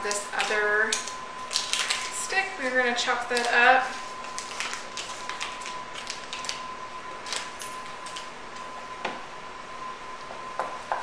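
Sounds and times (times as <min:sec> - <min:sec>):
paper wrapper crinkling: 0:00.1 - 0:08.3.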